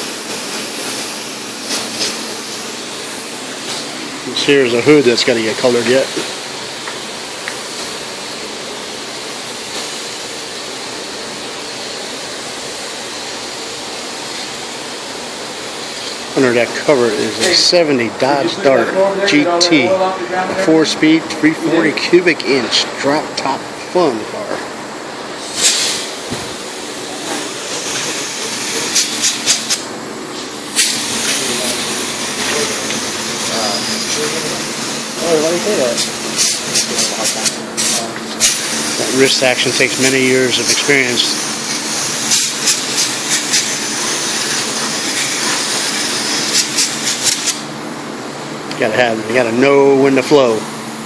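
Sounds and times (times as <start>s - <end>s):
short bursts of air: 0.0s - 4.6s, 25.2s - 47.7s
paint spray gun hissing: 0.0s - 16.4s, 25.3s - 47.7s.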